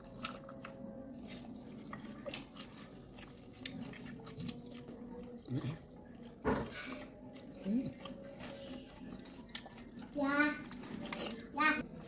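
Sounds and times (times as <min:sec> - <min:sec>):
person chewing food: 0:00.0 - 0:12.0.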